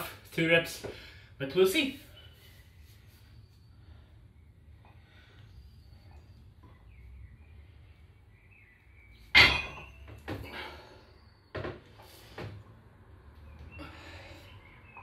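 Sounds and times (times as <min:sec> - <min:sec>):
barbell plates clanking: 0:09.4 - 0:10.6.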